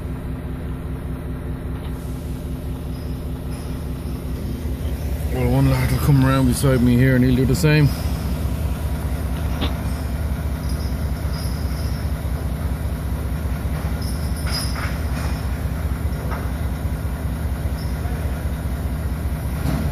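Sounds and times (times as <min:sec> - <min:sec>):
low engine drone: 0:00.0 - 0:19.9.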